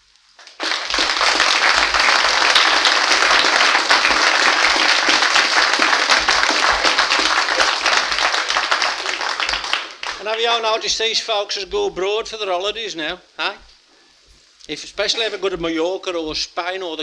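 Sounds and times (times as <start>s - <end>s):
audience applauding: 0.4s - 11.0s.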